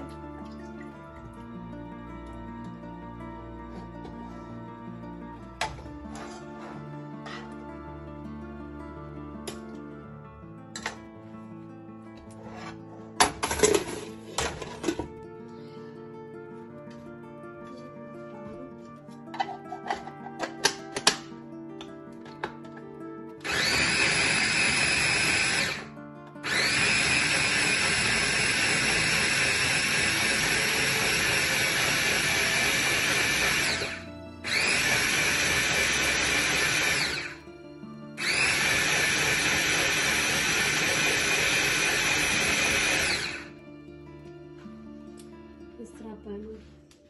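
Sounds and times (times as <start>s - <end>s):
blender motor whining: 23.4s - 37.5s, 38.2s - 43.6s.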